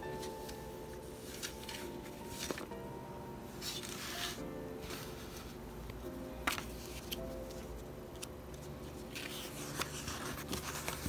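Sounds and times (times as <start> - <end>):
paper pages flipping: 0.1 - 2.8, 3.6 - 5.6, 6.4 - 11.0.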